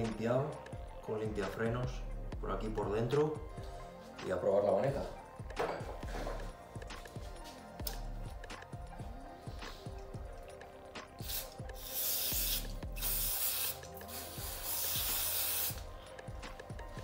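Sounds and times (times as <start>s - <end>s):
background music: 0.0s - 17.0s
aerosol spray hissing: 11.2s - 15.9s.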